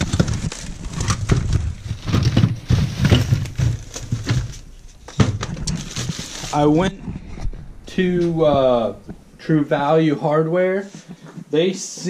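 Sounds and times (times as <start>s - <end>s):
plastic bag rustling: 0.0s - 9.4s.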